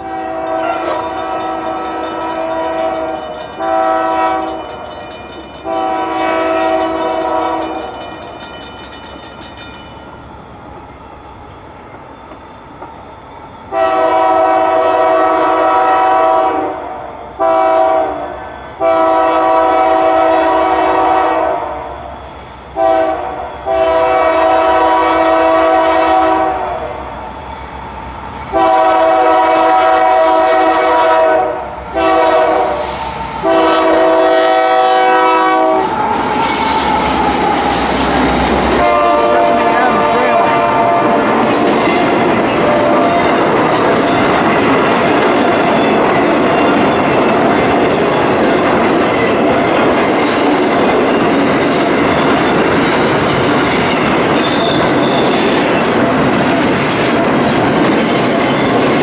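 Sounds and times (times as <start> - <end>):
locomotive air horn blasts: 0.0 - 0.9, 3.6 - 4.6, 5.6 - 7.8, 13.7 - 16.8, 17.4 - 21.9, 22.8 - 26.9, 28.6 - 35.9, 38.7 - 41.5, 42.5 - 43.4
bell ringing rapidly: 0.5 - 10.1.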